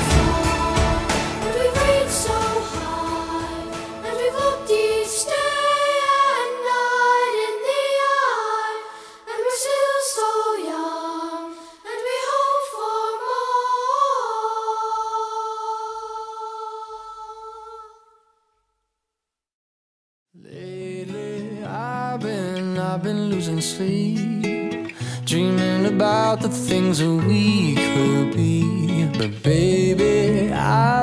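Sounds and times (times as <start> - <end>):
low musical accompaniment: 0.0 - 5.9
voices singing in harmony: 0.0 - 18.2.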